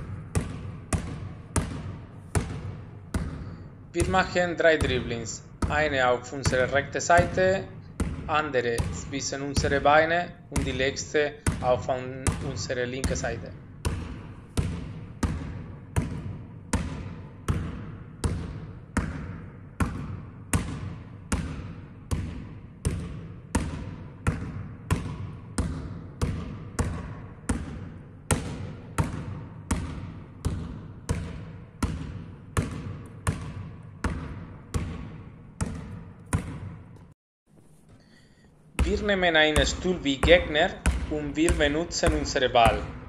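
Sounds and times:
basketball bouncing in hall: 0:00.0 - 0:43.0.

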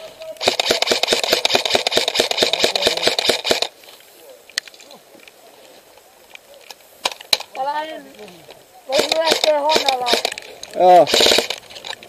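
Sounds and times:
airsoft gun full-auto burst: 0:00.4 - 0:03.7, 0:08.9 - 0:11.6.

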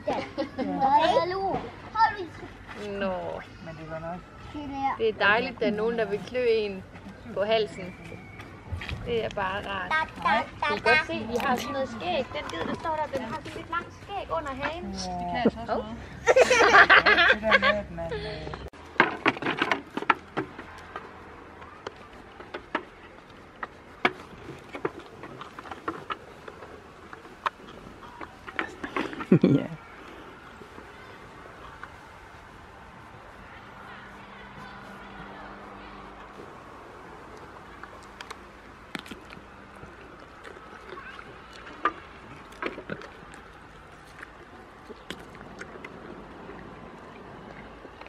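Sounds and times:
goat chewing cucumber crunches: 0:18.8 - 0:48.0.

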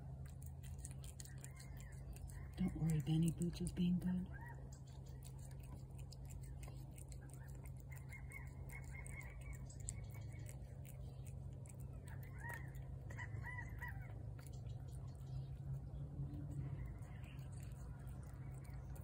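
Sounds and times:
steady low hum: 0:00.0 - 0:19.0
birds calling: 0:07.3 - 0:19.0.

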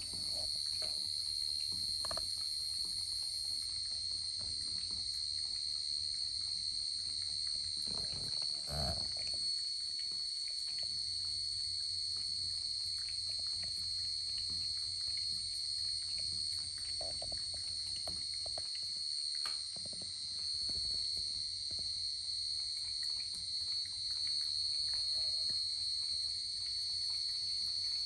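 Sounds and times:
cat lapping water: 0:07.2 - 0:11.3, 0:12.4 - 0:19.1.

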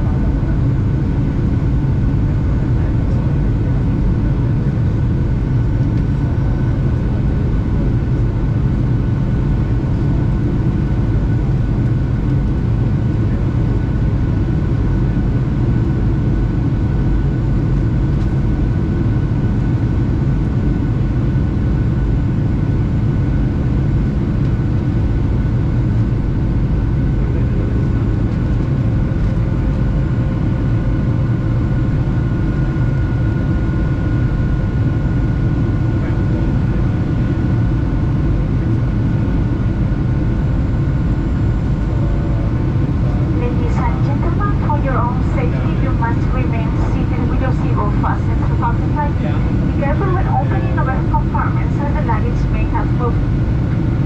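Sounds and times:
airplane cabin engine drone: 0:00.0 - 0:54.0
faint whining tones: 0:41.4 - 0:53.4.

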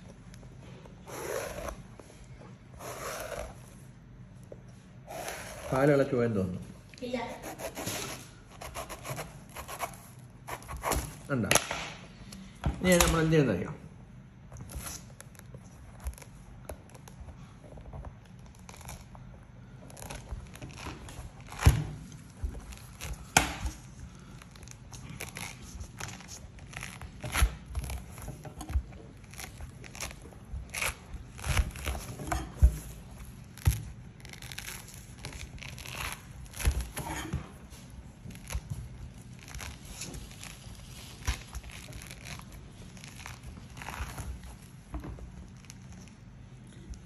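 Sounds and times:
fruit rind ripping by hand: 0:18.3 - 0:37.4.

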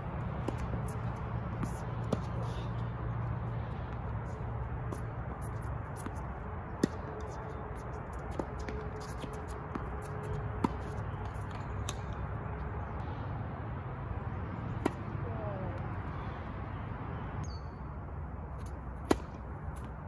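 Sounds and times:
tennis racket hitting ball: 0:19.0 - 0:19.9.

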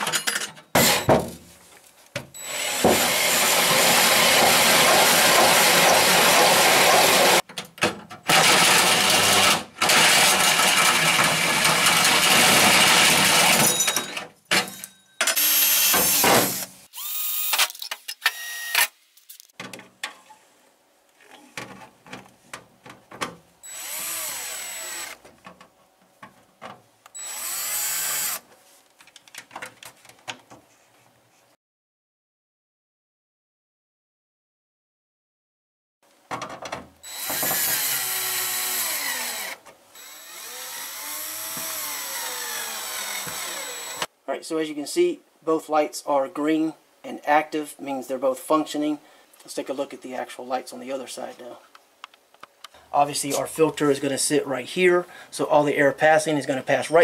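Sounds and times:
drill boring through sheet metal: 0:02.4 - 0:07.4, 0:08.3 - 0:13.7, 0:15.3 - 0:17.6, 0:23.7 - 0:25.2, 0:27.2 - 0:28.4, 0:37.0 - 0:44.1.

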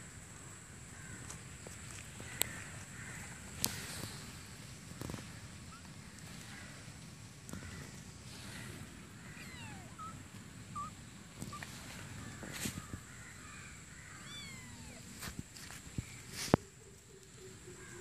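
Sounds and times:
kittens mewing: 0:08.6 - 0:12.5, 0:14.1 - 0:15.3.

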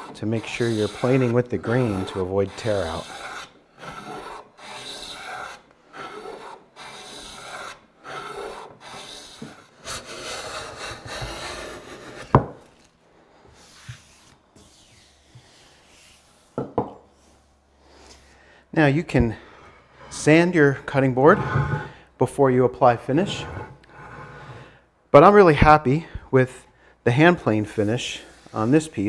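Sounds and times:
hand plane shaving strokes: 0:00.0 - 0:12.3, 0:13.6 - 0:16.5, 0:23.1 - 0:24.6, 0:27.8 - 0:29.0.

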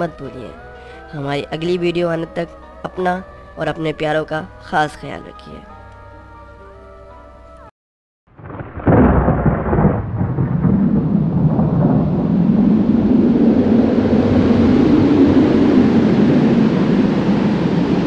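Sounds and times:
thunder crack and rumble: 0:08.3 - 0:18.0.

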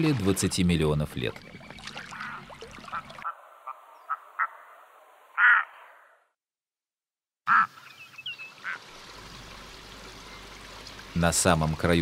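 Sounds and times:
loons croaking calls: 0:01.3 - 0:04.7.

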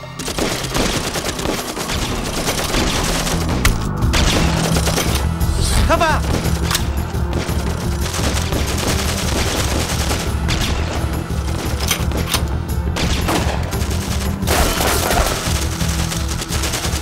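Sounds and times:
low pulsing music score: 0:00.0 - 0:17.0
automatic gunfire: 0:00.2 - 0:05.1, 0:07.3 - 0:10.9, 0:13.0 - 0:17.0.

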